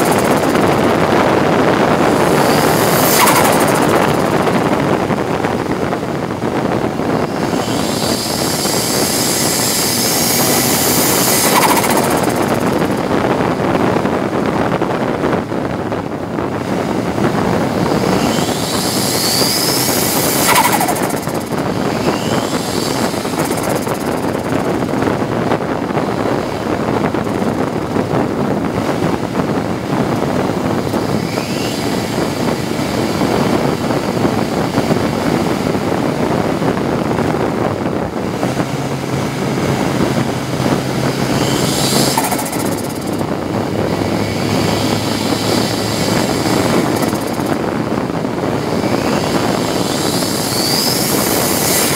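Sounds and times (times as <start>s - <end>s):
race car engine under load: 0.0s - 51.9s
wind and road noise: 0.0s - 51.9s
turbo whistles falling in pitch: 2.1s - 4.5s, 7.3s - 13.0s, 18.0s - 24.6s, 41.4s - 43.3s, 48.8s - 51.9s.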